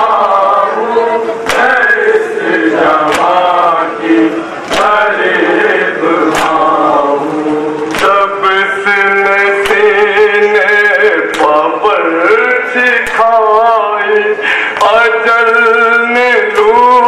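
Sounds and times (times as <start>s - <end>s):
men chanting an elegy: 0.0s - 17.0s
hands slapping chests: 1.4s - 1.7s, 3.1s - 3.3s.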